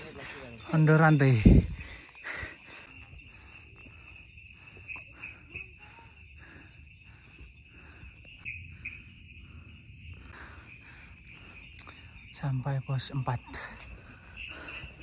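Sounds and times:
night insects chirring: 0.0s - 15.0s.

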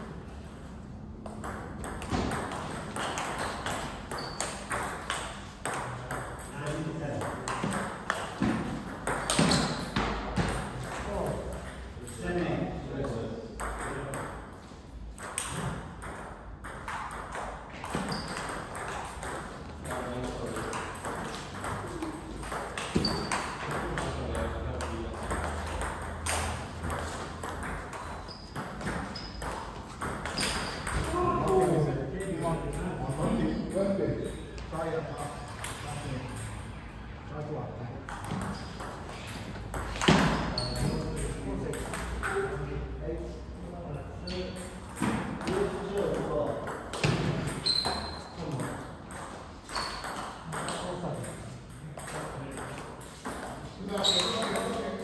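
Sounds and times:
table tennis balls clicking: 1.2s - 11.9s, 15.1s - 31.8s.

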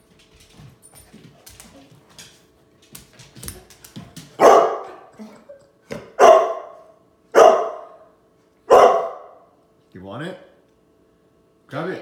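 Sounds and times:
dog barking: 4.4s - 5.1s, 6.0s - 8.1s, 8.7s - 9.5s.

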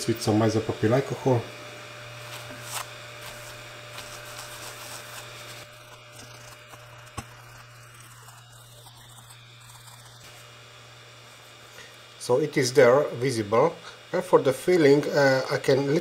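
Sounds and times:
steady low hum: 0.0s - 16.0s
paper towel scrubbing steel sheet: 2.2s - 10.5s.

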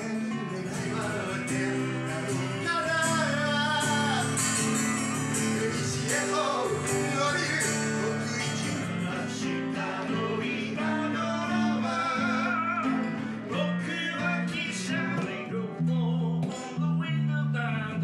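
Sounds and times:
acoustic guitar: 0.0s - 18.0s
electric guitar through amp: 0.0s - 18.0s
man singing: 0.0s - 18.0s.

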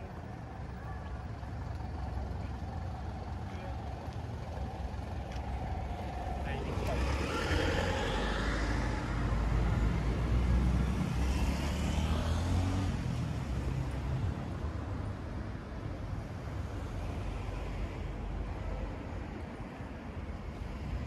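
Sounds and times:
traffic hum: 0.0s - 21.0s
car passing: 2.7s - 14.6s.

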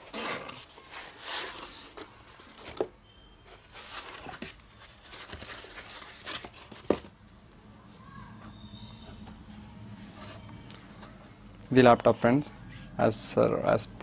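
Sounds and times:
foam rustling and scraping: 3.6s - 7.0s.

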